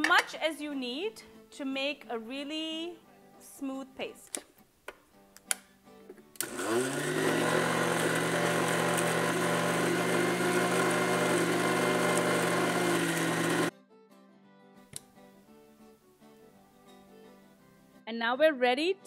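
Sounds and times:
food processor motor grinding: 6.4 - 13.7.

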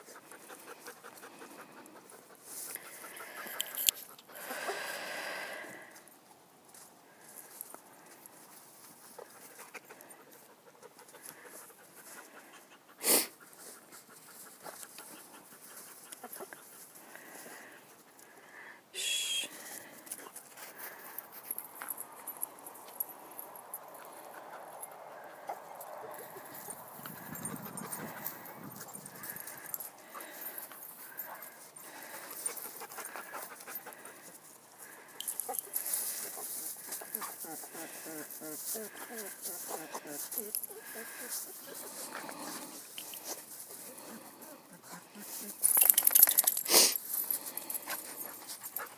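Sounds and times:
dog breathing: 0.0 - 6.0, 19.6 - 48.9.

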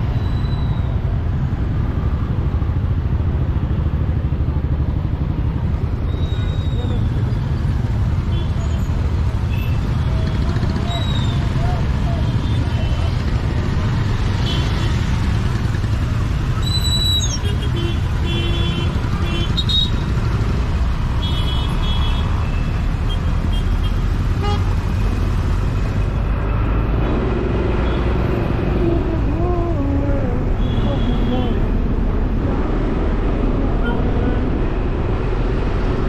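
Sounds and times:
city traffic: 0.0 - 36.0
vehicle horn toots: 30.6 - 31.6.

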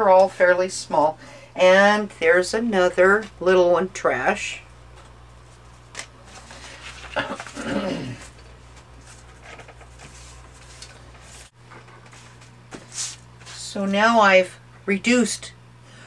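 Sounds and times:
steady low hum: 0.0 - 16.0
paper rustling: 6.3 - 11.5.

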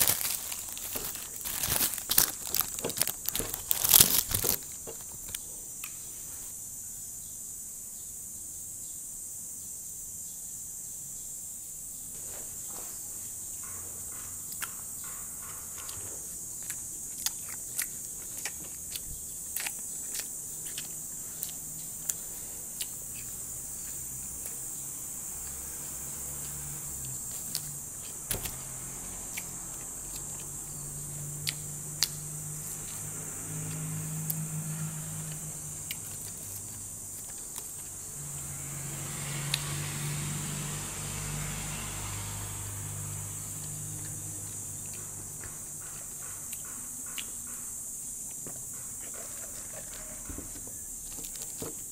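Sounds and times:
steady hiss: 0.0 - 13.6.

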